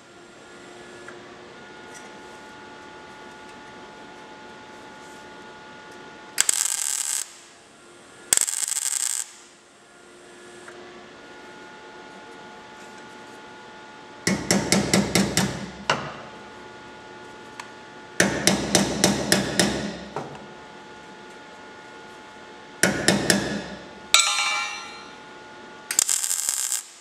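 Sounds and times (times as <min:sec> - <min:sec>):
welder crackling: 0:06.4 - 0:07.5, 0:08.3 - 0:09.5, 0:25.9 - 0:27.0
hammer tapping sheet metal: 0:22.8 - 0:25.2
sharp hammer clang: 0:24.2 - 0:25.2.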